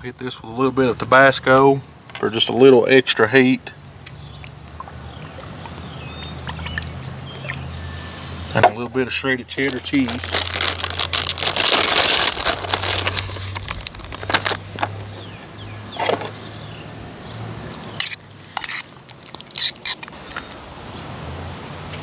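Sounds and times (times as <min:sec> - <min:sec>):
plastic bag crinkling: 0:09.5 - 0:15.2.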